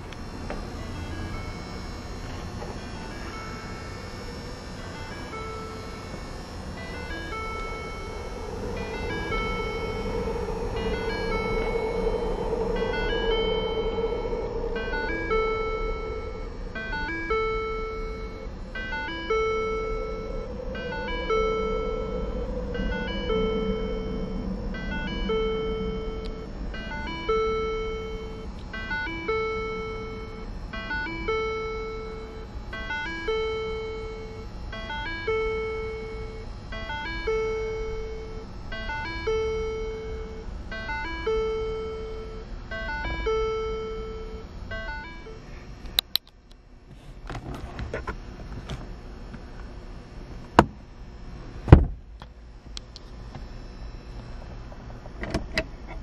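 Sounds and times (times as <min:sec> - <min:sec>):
electronic chime: 0:00.0 - 0:45.8
scattered clicks: 0:45.8 - 0:46.6.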